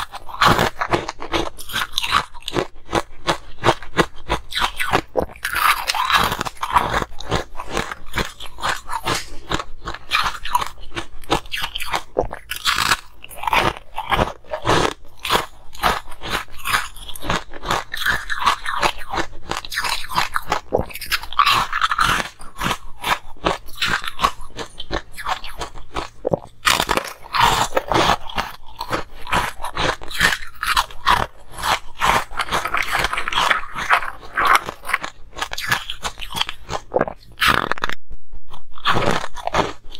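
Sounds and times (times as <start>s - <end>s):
ice cubes crunching while chewed: 0.0s - 39.9s.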